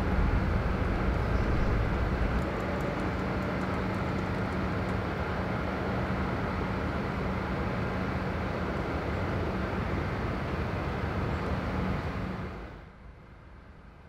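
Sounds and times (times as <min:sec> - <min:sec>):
vehicle rumble with low hum: 0:00.0 - 0:14.0.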